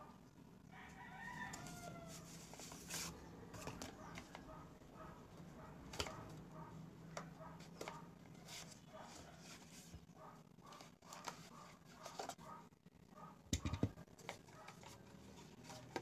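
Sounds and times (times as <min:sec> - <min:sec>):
rooster crowing: 0:00.7 - 0:02.4.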